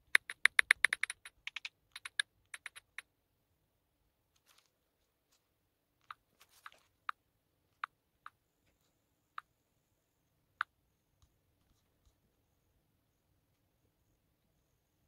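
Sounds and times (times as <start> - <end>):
fingertips tapping touchscreen: 0.0 - 3.0.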